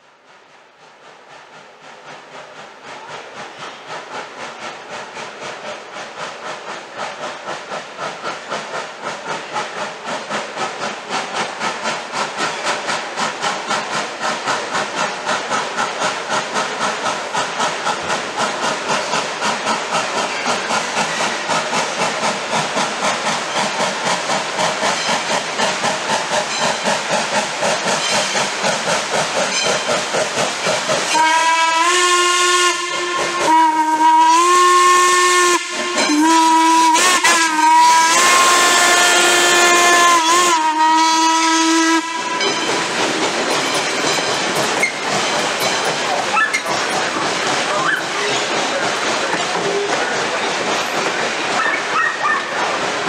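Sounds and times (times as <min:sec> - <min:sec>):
steam locomotive chuffing: 0:00.0 - 0:53.0
steam whistle blasts: 0:31.0 - 0:42.7.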